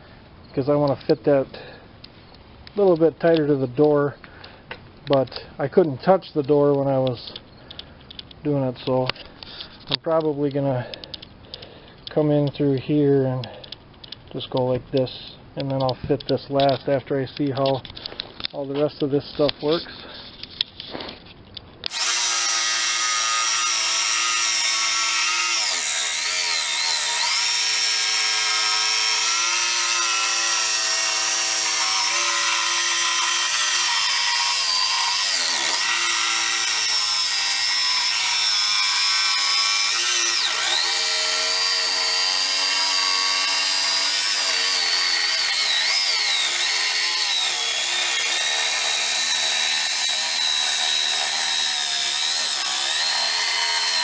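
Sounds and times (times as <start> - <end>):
jigsaw cutting plywood: 21.9 - 54.0.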